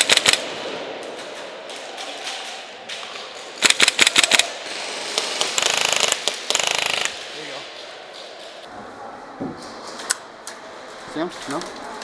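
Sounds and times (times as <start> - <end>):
airsoft guns firing: 0.0 - 7.3.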